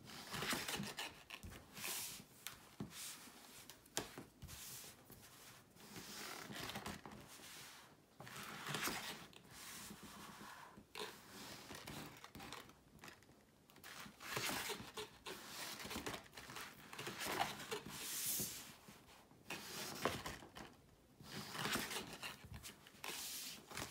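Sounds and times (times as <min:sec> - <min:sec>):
paper and card rustling: 0:19.5 - 0:23.9.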